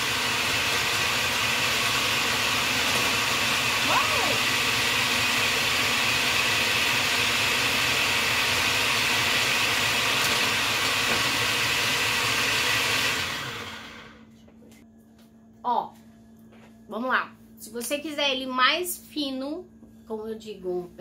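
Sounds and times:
food processor motor running: 0:00.0 - 0:14.3.

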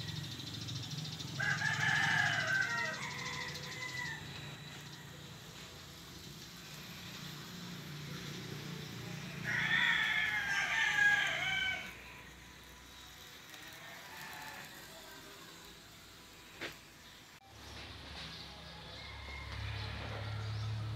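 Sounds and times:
rooster crowing: 0:00.0 - 0:06.0, 0:08.2 - 0:15.6, 0:18.6 - 0:20.9.

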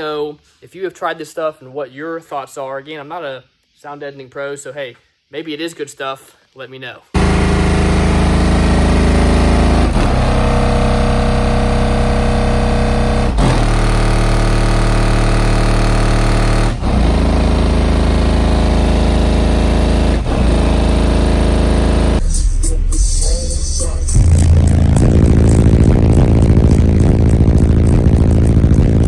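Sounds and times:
loud bass-heavy car music: 0:07.2 - 0:29.0.

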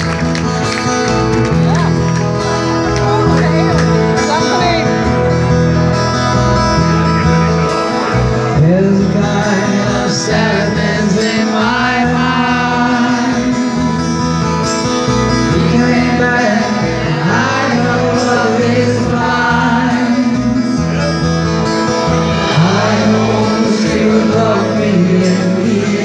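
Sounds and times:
live band playing: 0:00.0 - 0:26.0
man singing: 0:08.5 - 0:14.4, 0:15.1 - 0:26.0.

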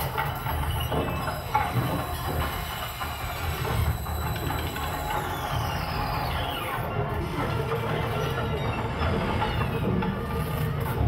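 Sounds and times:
high tones gliding downward: 0:00.0 - 0:07.1
steady high tones: 0:00.0 - 0:10.0.

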